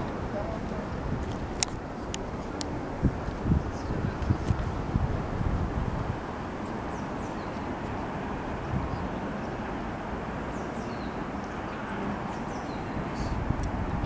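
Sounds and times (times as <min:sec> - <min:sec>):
wind buffeting microphone: 0:00.0 - 0:14.0
small birds chirping: 0:06.6 - 0:09.8, 0:10.4 - 0:14.0.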